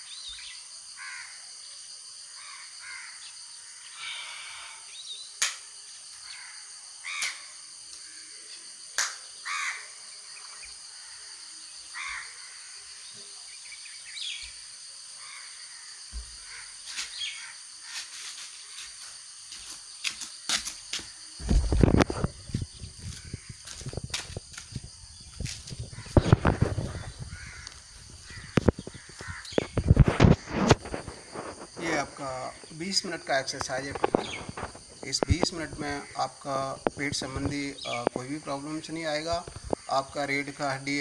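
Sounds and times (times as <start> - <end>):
crows cawing: 1.0 - 1.4, 2.3 - 4.9, 6.2 - 8.3, 9.4 - 10.0, 10.9 - 13.1, 15.2 - 18.9, 23.0 - 23.9, 25.9 - 32.1, 35.2 - 36.4.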